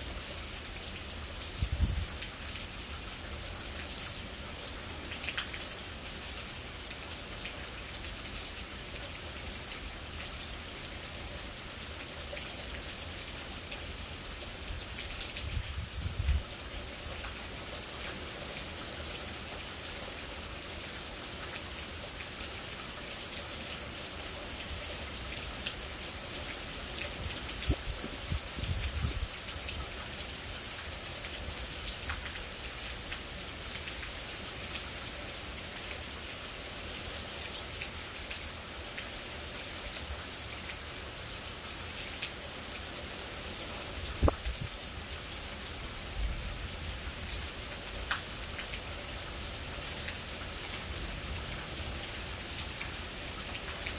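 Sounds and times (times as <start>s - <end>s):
heavy rain falling: 0.0s - 53.9s.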